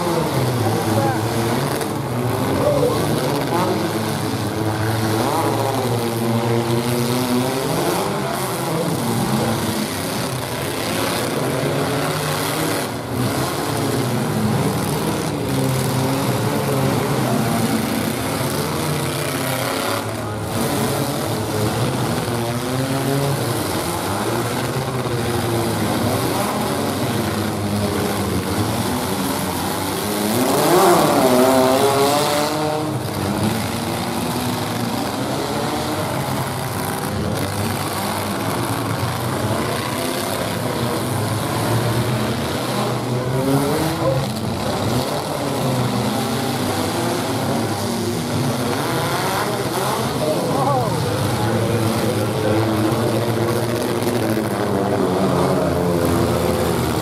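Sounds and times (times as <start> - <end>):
truck engines revving: 0.0 - 57.0.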